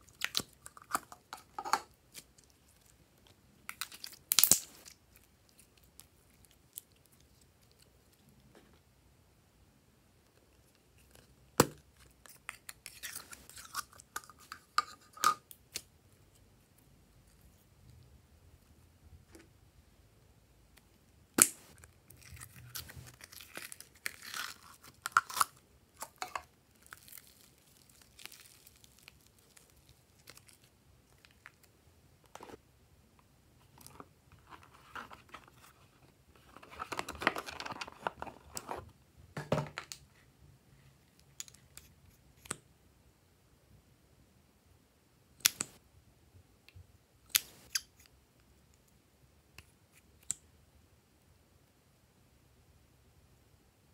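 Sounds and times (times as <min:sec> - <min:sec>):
rustling and scraping: 0:22.4 - 0:23.6, 0:33.6 - 0:38.9.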